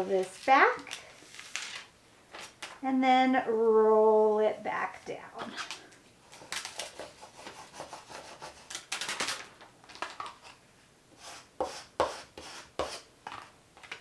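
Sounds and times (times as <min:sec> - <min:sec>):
plastic sheets rustling: 0:00.0 - 0:02.8, 0:08.6 - 0:10.6.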